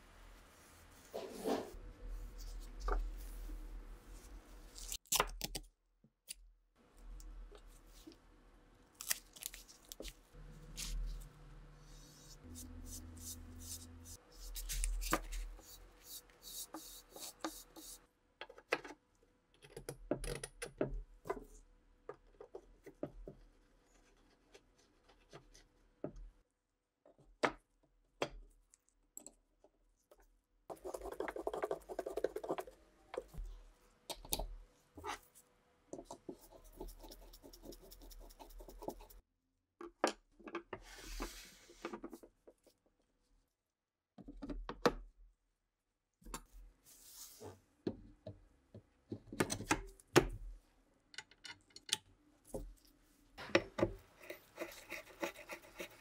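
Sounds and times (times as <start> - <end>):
paint brush brushing wood: 10.8 - 18.0.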